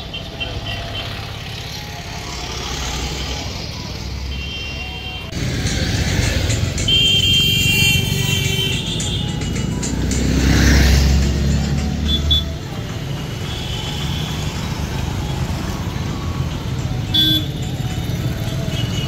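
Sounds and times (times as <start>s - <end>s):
motorcycles and cars passing: 0.0s - 19.0s
background music with held notes: 5.3s - 19.0s.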